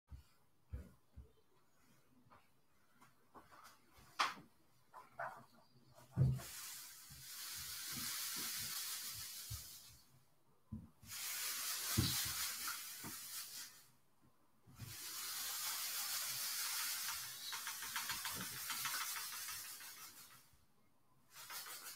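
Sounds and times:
steady hissing bursts: 6.1s - 10.2s, 11.0s - 14.0s, 14.7s - 20.6s, 21.2s - 21.9s.

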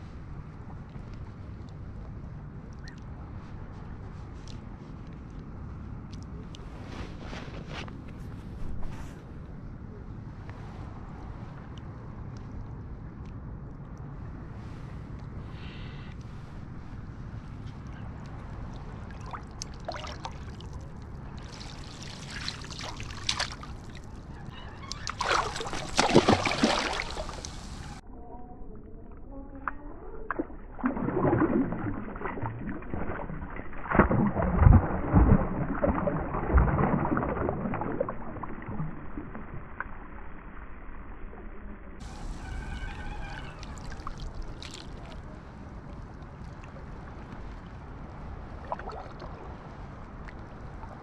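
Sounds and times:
wind rumble on microphone: 0.0s - 15.6s, 25.6s - 51.0s
water splashing from thrashing fish: 18.8s - 24.2s, 25.0s - 27.8s, 30.8s - 39.5s, 43.4s - 45.2s.

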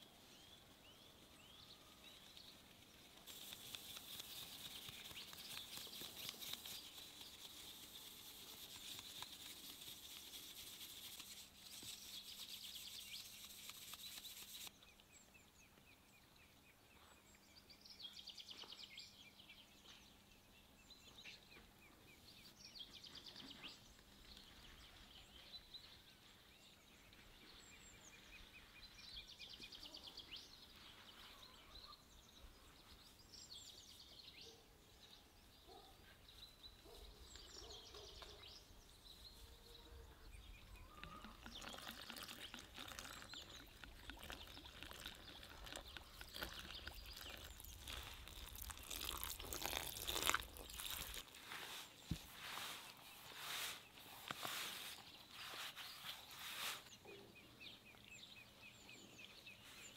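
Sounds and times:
faint birds chirping: 0.0s - 59.9s
flour rustling through a sieve: 2.5s - 14.7s, 41.6s - 57.0s.

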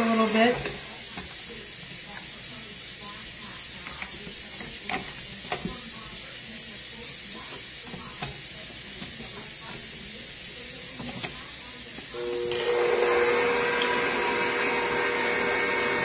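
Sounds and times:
stand mixer motor whining: 0.0s - 0.9s, 12.1s - 16.0s
tap running: 0.0s - 2.6s, 3.3s - 16.0s.

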